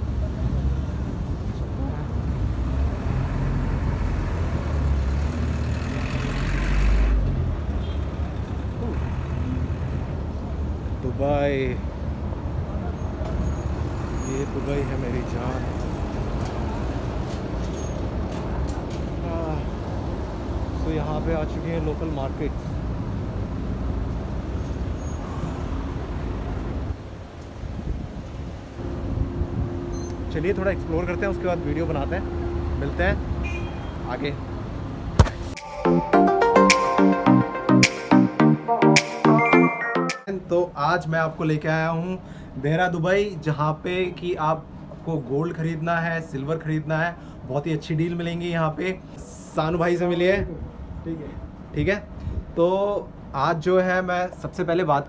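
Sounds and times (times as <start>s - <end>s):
vehicle engines rumbling: 0.0s - 35.6s, 40.3s - 55.0s
truck driving past: 2.4s - 10.4s.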